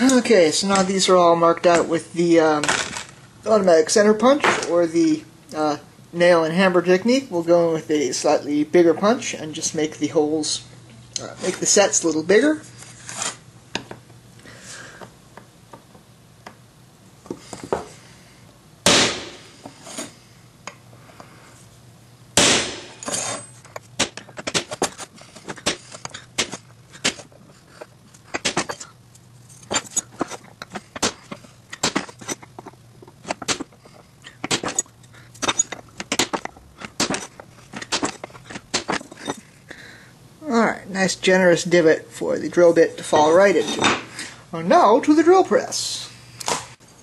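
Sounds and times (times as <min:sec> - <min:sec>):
center punch strikes on metal: 0:18.8 - 0:19.4, 0:22.4 - 0:23.0.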